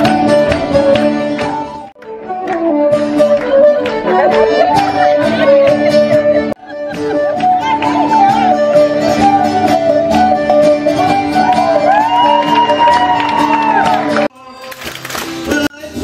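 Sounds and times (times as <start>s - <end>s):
banjo: 0.0s - 12.2s
traditional folk music: 0.0s - 16.0s.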